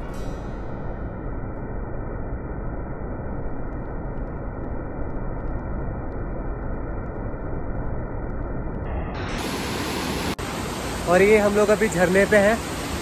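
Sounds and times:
muffled waterfall rushing: 0:08.9 - 0:13.0.

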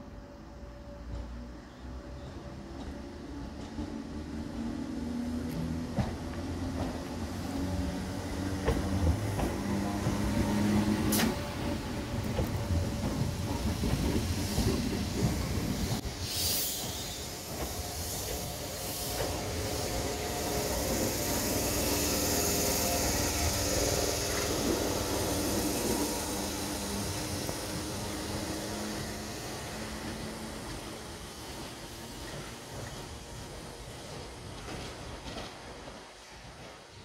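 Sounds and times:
train wheels and motors rumbling: 0:00.9 - 0:37.0
air hissing burst: 0:15.7 - 0:30.1.

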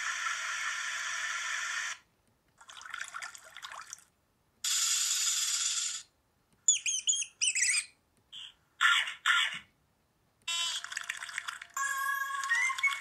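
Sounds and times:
high chirps: 0:06.7 - 0:08.5, 0:11.8 - 0:13.0.

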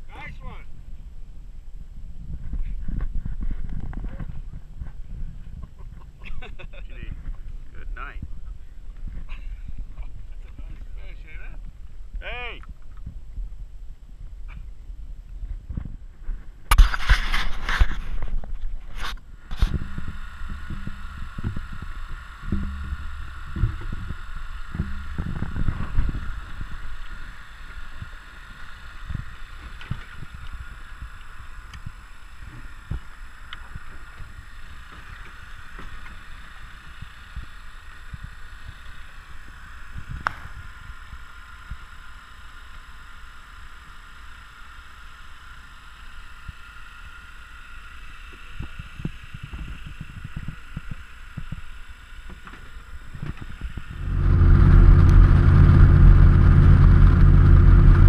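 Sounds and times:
outboard motor running: 0:16.7 - 0:58.0
water noise: 0:16.7 - 0:58.0.

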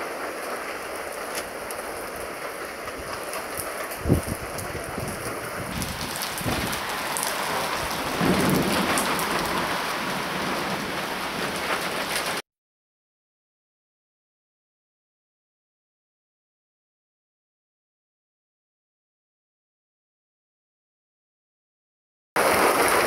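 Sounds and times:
rain hissing: 0:00.0 - 0:12.4, 0:22.4 - 0:23.0
thunder rumbling: 0:00.0 - 0:12.4, 0:22.4 - 0:23.0.

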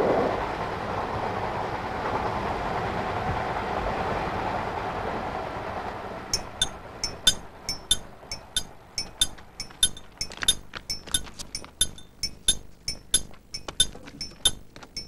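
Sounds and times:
train rumble: 0:00.0 - 0:10.6
ringing metallic clinks: 0:06.4 - 0:15.0.

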